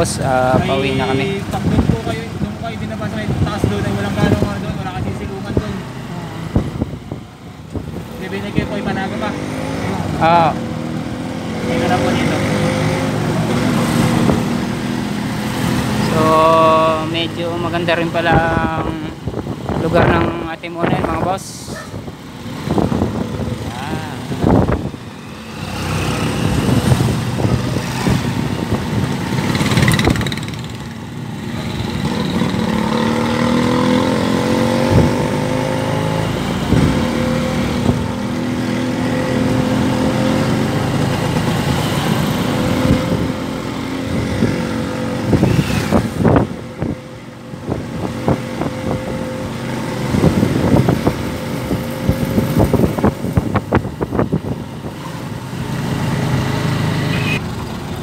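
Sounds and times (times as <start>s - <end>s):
motorcycle engine accelerating: 0.0s - 17.1s, 21.8s - 58.0s.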